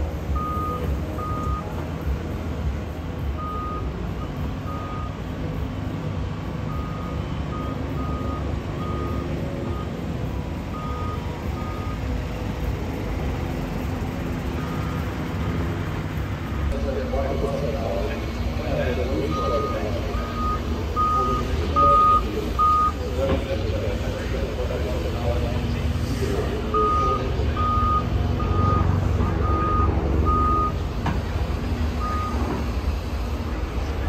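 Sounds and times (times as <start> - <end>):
excavator diesel engine running: 0.0 - 34.0
high electronic alarm beeps: 0.4 - 1.8, 3.4 - 5.3, 6.7 - 10.0, 10.7 - 12.1, 19.2 - 23.0, 26.7 - 30.8.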